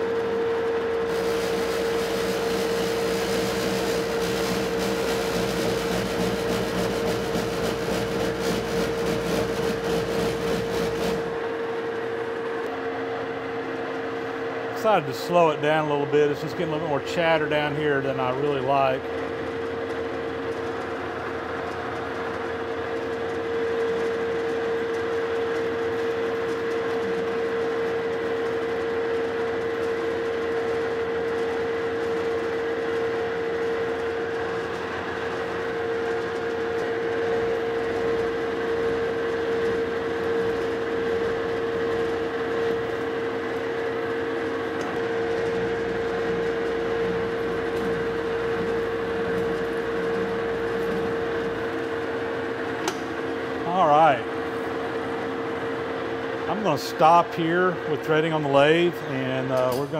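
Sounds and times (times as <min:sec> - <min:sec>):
constant whine: 0:00.0 - 0:59.9
metal lathe cutting: 0:01.0 - 0:11.6, 0:33.3 - 0:53.6.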